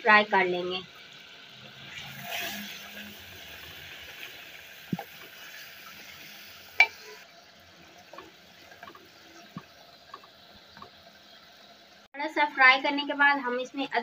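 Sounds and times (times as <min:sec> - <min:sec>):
meat sizzling in ghee: 0:00.0 - 0:13.9
spatula stirring and scraping: 0:01.9 - 0:05.9.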